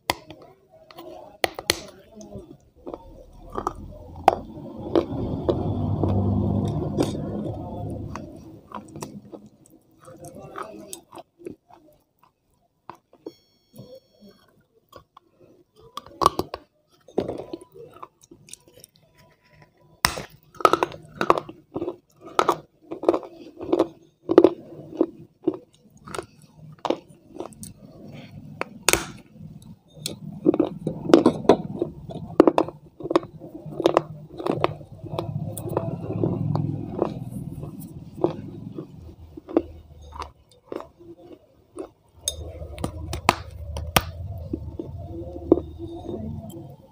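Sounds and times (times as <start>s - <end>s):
chewing crunchy food: 0.0s - 46.9s
low rumble: 2.6s - 9.5s, 34.6s - 40.0s, 42.3s - 46.9s.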